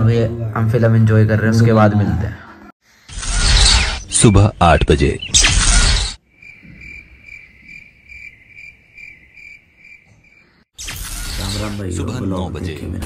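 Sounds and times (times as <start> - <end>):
crickets chirping: 5.8 - 10.7.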